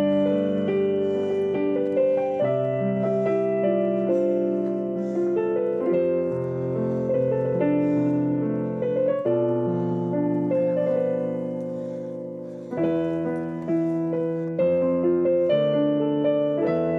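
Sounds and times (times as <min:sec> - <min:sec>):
background piano music: 0:00.0 - 0:16.9.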